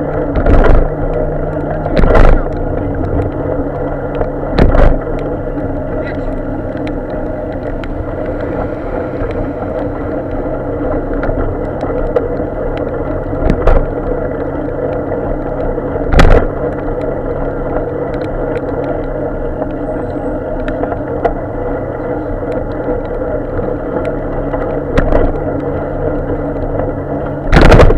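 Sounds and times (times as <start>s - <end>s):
traffic: 0.0s - 27.9s
wind on camera: 0.0s - 27.9s
loud thumps: 1.9s - 3.3s, 4.5s - 5.0s, 16.1s - 16.5s, 27.5s - 27.9s.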